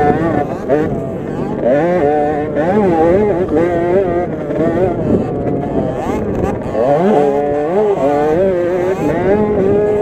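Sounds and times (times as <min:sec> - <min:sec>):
two-stroke minibike engine revving: 0:00.0 - 0:10.0.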